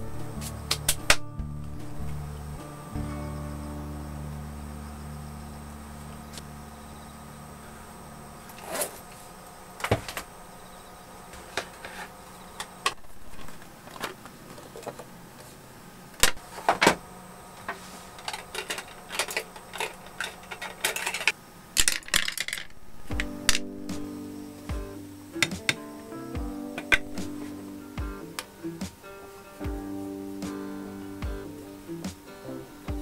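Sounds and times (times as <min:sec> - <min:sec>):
background music: 0:00.0 - 0:08.5, 0:23.0 - 0:33.0.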